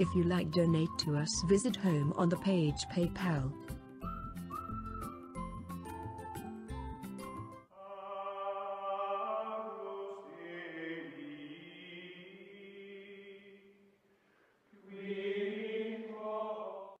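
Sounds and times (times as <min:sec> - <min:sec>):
choir-like voices chanting: 0:07.8 - 0:13.8, 0:14.8 - 0:17.0.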